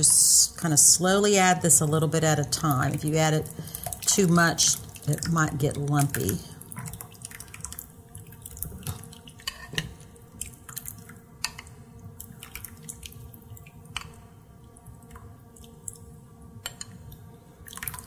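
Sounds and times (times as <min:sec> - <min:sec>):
wet stirring of thick food: 0:01.8 - 0:16.2.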